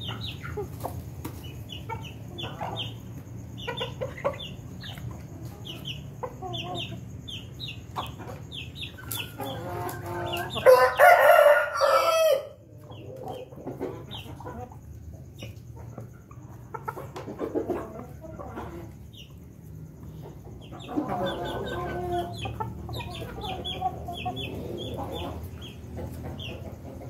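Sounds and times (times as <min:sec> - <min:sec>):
chickens clucking softly: 0:00.0 - 0:27.0
rooster crowing: 0:10.1 - 0:12.6.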